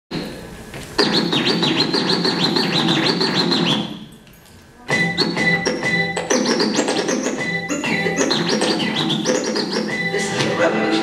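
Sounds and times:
hip-hop music: 5.0s - 11.0s.

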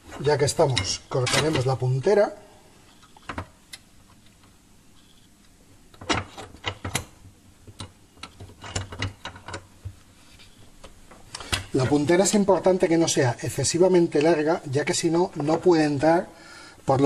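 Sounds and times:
metallic clicks and knocks: 0.7s - 1.8s, 5.9s - 10.0s.

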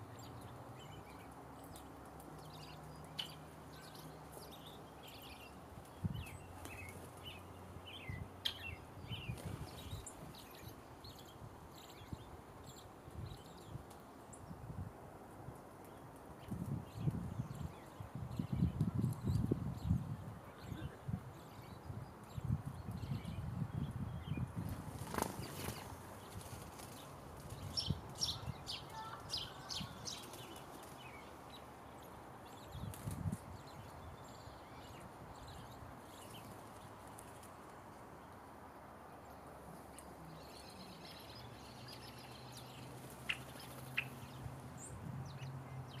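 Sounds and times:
small birds calling: 0.0s - 14.6s, 15.8s - 38.4s, 39.2s - 46.0s
outdoor background noise: 0.0s - 46.0s
bird wing flutters: 24.6s - 27.6s.

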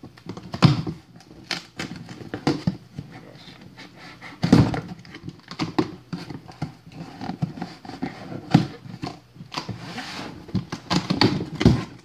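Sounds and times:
scratchy scraping on cardboard: 9.6s - 10.6s.

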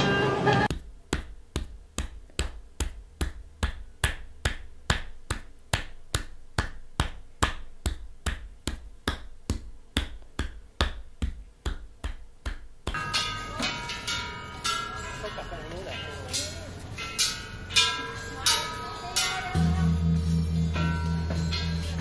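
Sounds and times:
percussive massage thumps: 0.7s - 13.1s.

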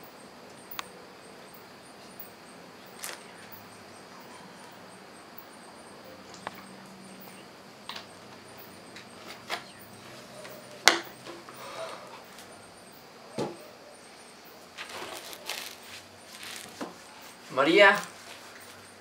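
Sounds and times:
faint steady hiss: 0.0s - 19.0s
rustling: 14.5s - 19.0s.

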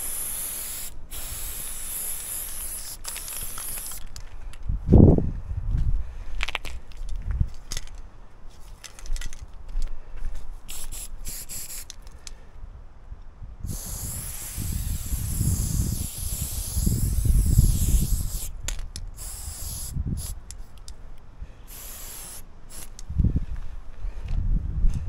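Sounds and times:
spray paint can hissing: 0.0s - 4.2s, 10.7s - 12.1s, 13.7s - 20.9s, 21.7s - 23.1s.

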